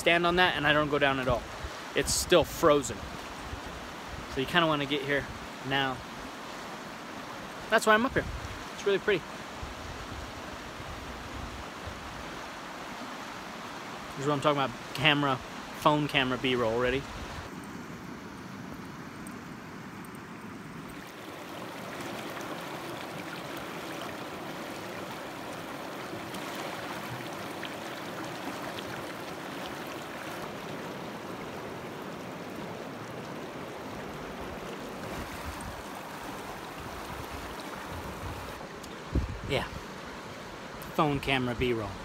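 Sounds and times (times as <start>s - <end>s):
river rushing over boulders: 0.0s - 17.5s, 20.6s - 42.0s.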